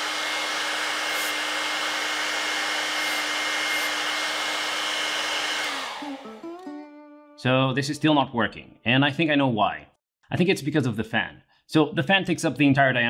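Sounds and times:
hairdryer running: 0.0 - 6.7.

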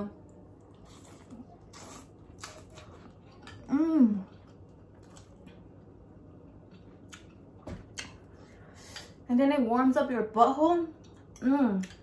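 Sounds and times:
clicking and slurping eating noises: 0.2 - 5.8.

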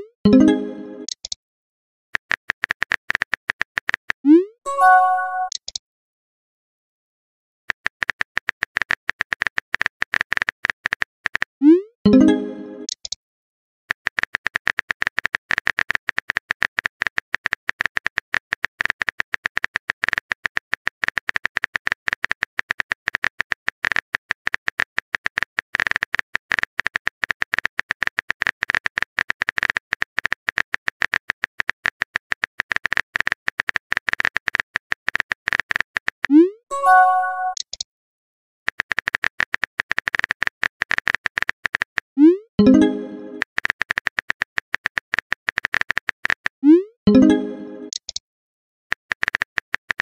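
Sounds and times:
keyboard typing clicks: 0.3 - 1.4, 4.7 - 5.8, 35.1 - 37.8, 42.6 - 46.4, 47.1 - 48.2.

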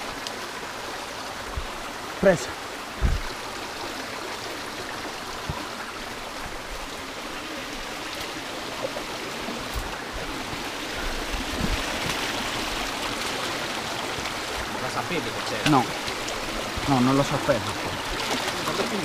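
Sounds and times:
stream flowing over rocks: 0.0 - 19.0
faint low knocks: 3.0 - 3.4.

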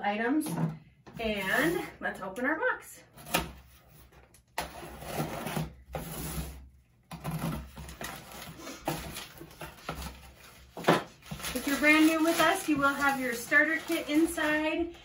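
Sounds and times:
packing paper rustling: 7.2 - 15.0.

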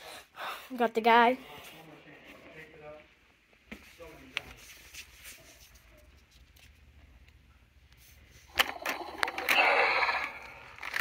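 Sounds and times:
electronic dinosaur roar: 8.8 - 10.7.

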